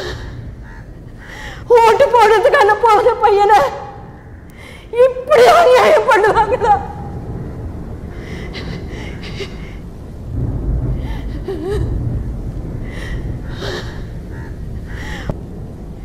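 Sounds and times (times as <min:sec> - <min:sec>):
low rumble: 0:00.0 - 0:16.0
woman sobbing: 0:01.2 - 0:03.9, 0:04.6 - 0:07.2, 0:08.2 - 0:09.9, 0:11.0 - 0:12.1
gasping breaths: 0:12.8 - 0:15.4.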